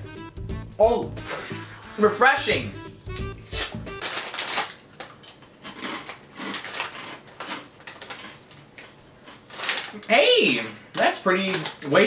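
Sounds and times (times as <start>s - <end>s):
plastic snack bag crinkling: 3.4s - 12.0s.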